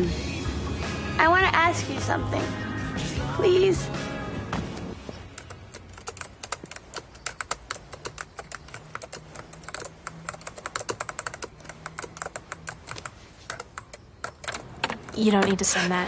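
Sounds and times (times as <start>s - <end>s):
typing on computer keyboard: 5.3s - 15.5s.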